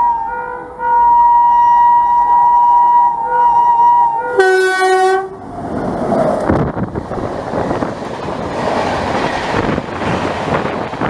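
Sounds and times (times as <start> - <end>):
train air horn blasts: 0.0 - 5.4.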